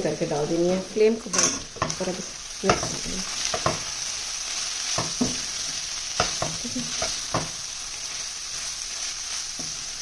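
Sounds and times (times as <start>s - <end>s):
meat sizzling in a pot: 0.0s - 10.0s
spoon knocking and scraping pot: 1.3s - 3.9s, 6.2s - 7.6s.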